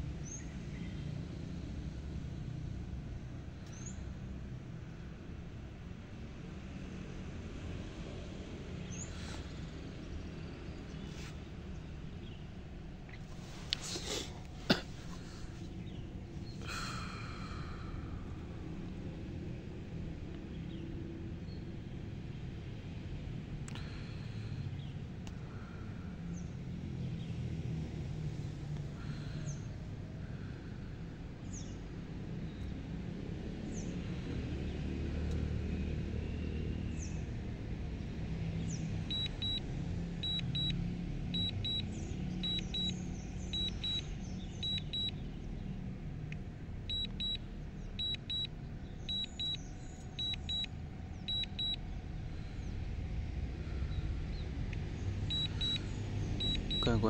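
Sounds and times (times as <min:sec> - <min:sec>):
steady low rumble: 0:38.9 - 0:57.0
short high warning beeps: 0:39.1 - 0:39.6, 0:40.2 - 0:40.8, 0:41.4 - 0:45.2, 0:46.9 - 0:47.4, 0:48.0 - 0:48.5, 0:49.1 - 0:51.8, 0:55.3 - 0:55.8, 0:56.4 - 0:57.0.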